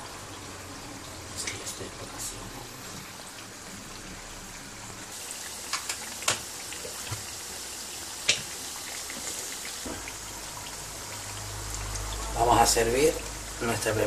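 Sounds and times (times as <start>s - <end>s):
dough sizzling in hot oil: 0.0s - 14.0s.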